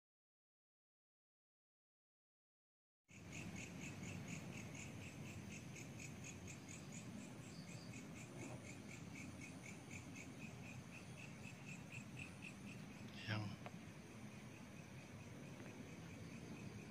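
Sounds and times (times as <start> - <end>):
crickets chirping: 3.1 - 16.9.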